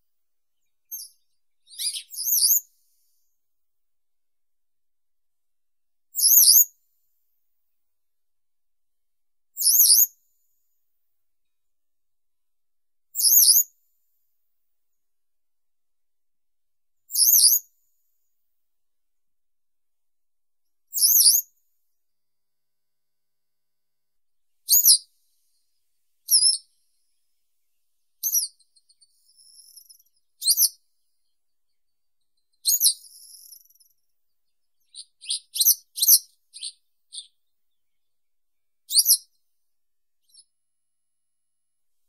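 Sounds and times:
wagtail calling: 34.9 - 37.4.

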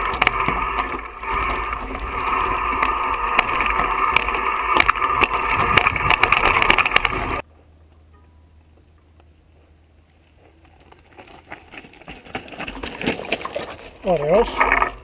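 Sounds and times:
bike clattering on rocks: 0.0 - 7.4, 10.6 - 15.0
bike rushing noise: 0.0 - 7.5.

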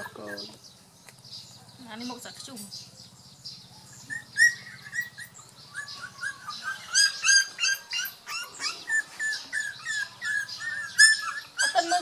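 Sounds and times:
puppies squeaking and yipping: 0.0 - 0.7, 3.5 - 12.0.

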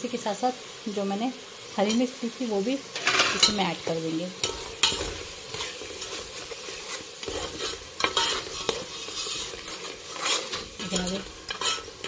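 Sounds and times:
food sizzling in oil: 0.0 - 12.0
spoon scraping metal pot: 4.4 - 12.0.

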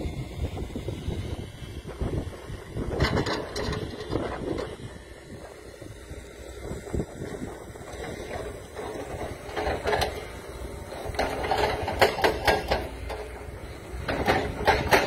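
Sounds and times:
hydraulic breaker hammering rock: 8.0 - 15.0.

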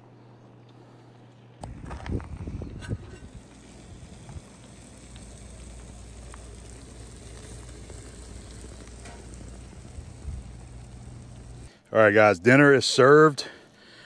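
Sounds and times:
low steady hum: 0.0 - 14.0
fish sizzling on a grill: 2.7 - 11.8.

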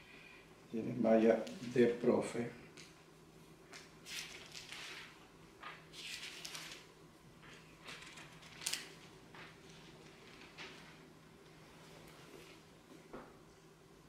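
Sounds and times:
faint steady hum: 0.0 - 14.0
paper pages rustling: 3.8 - 11.1.

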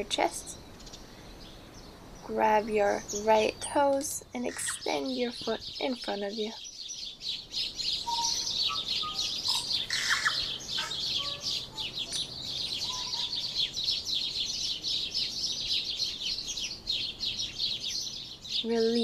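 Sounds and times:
rapid high-pitched chirping: 4.5 - 19.0
whistled bird notes: 6.6 - 19.0.

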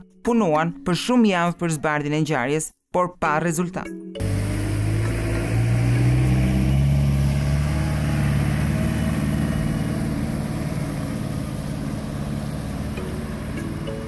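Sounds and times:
vehicle engines running low: 4.2 - 14.0.

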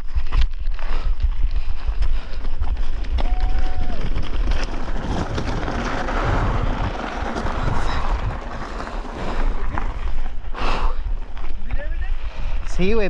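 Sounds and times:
bike clicks and rattles: 0.0 - 11.9
wind rumble on microphone: 0.0 - 13.0
tyres crunching over gravel: 1.6 - 10.5.

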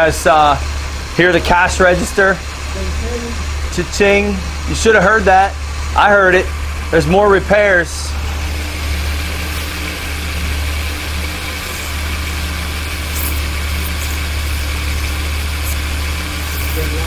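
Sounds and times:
car engine idling: 0.0 - 17.0
air hissing through vacuum leak: 8.0 - 17.0.

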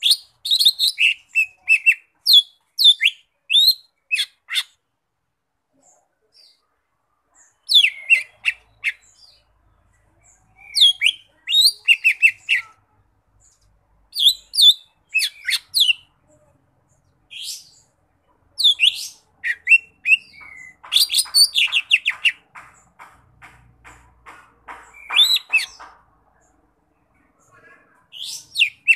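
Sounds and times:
bird singing whistles and chips: 0.0 - 4.7, 18.6 - 22.4, 28.3 - 28.9.

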